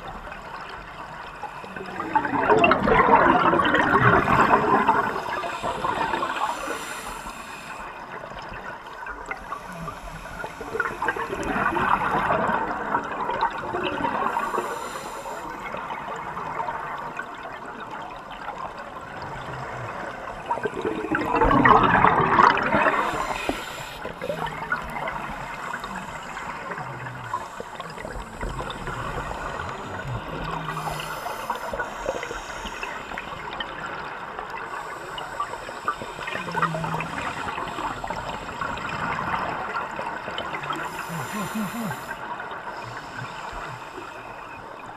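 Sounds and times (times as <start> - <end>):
underwater hiss: 0.1 - 16.9, 19.2 - 44.9
regulator exhaust bubbles gurgling: 1.7 - 6.6, 15.6 - 44.9.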